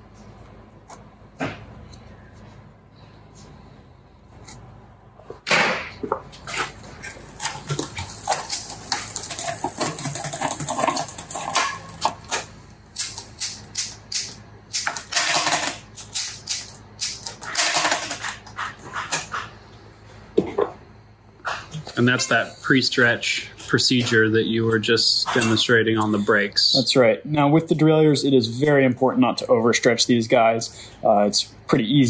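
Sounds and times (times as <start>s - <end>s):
bike chain clicking and rattling: 7.0s - 12.3s.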